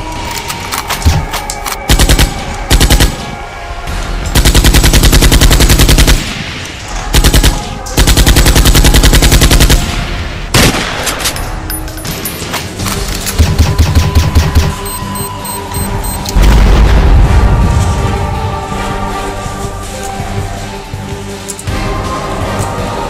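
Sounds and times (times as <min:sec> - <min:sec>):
airsoft rifle firing bursts: 0:04.4 - 0:06.3, 0:07.1 - 0:09.9.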